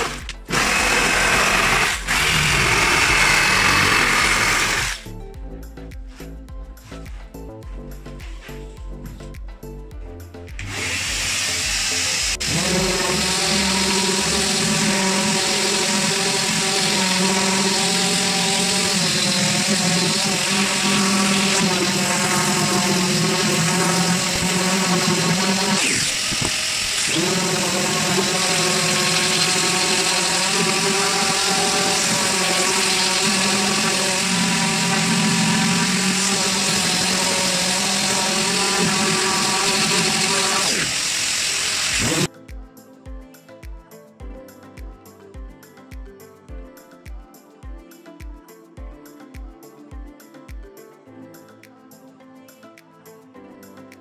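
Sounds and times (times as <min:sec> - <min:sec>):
orbital sander on wood: 0:00.0 - 0:05.0, 0:10.6 - 0:42.3.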